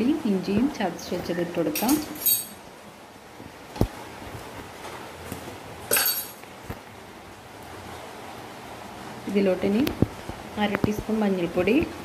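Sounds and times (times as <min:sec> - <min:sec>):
clinking rattles: 0:01.8 - 0:02.6, 0:05.9 - 0:06.4.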